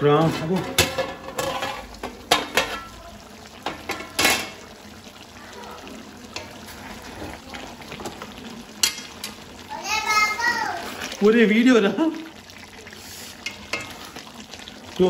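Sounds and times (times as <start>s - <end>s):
spatula scraping pan: 0.0s - 3.0s, 12.9s - 14.2s
metal lid clattering: 0.2s - 3.0s, 3.6s - 4.6s.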